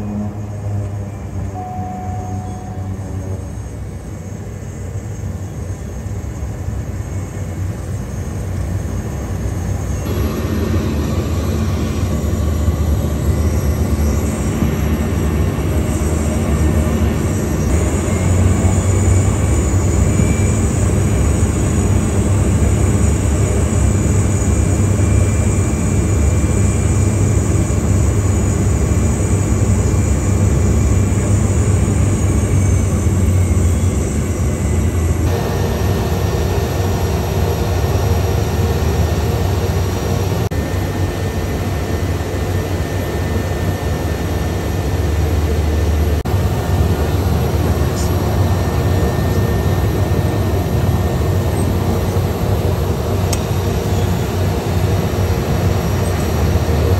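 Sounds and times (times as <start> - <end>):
turboprop engine droning: 0.0 - 56.9.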